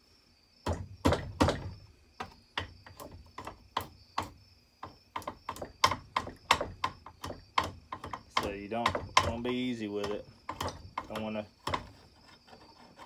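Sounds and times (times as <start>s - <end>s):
hammer tapping metal: 3.8s - 11.9s.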